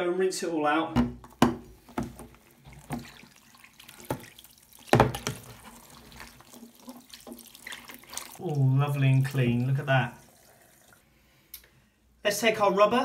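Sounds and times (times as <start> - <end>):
tap water running into sink: 1.9 - 11.0
shower head knocking in basin: 4.9 - 5.7.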